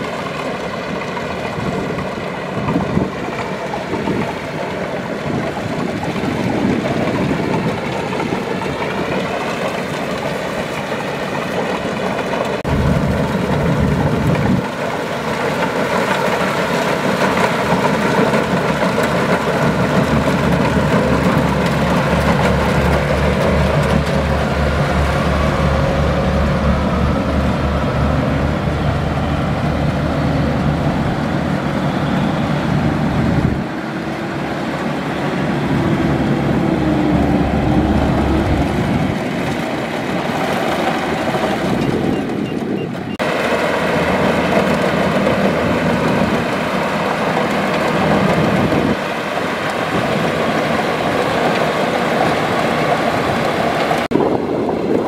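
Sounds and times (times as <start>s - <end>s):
combine harvester running: 0.0s - 55.0s.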